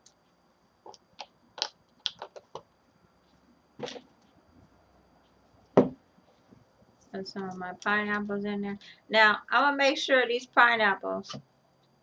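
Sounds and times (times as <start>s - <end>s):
containers clicking and tapping: 0.9s - 2.7s
container knocking on counter: 5.8s - 6.0s.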